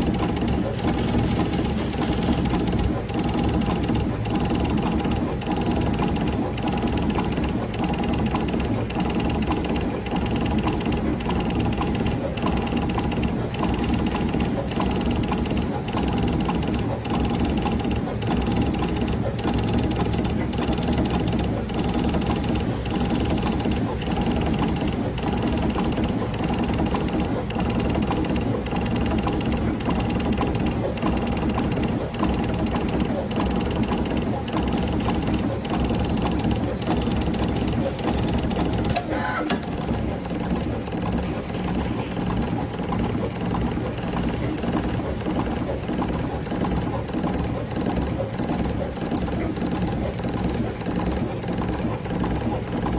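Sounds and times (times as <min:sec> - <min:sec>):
machine clicks: 0:00.0 - 0:52.9
machine motor hum: 0:00.0 - 0:52.9.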